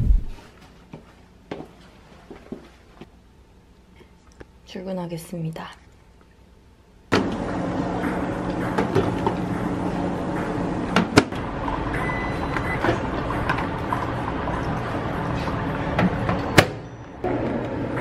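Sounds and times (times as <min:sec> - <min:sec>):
microwave oven humming: 0:07.1 - 0:18.0.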